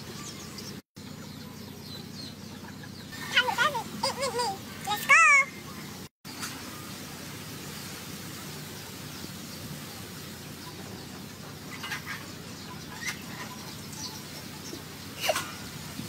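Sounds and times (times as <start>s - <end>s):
bird chirps: 0.0s - 3.7s, 8.5s - 15.2s
outdoor background hiss: 0.0s - 16.0s.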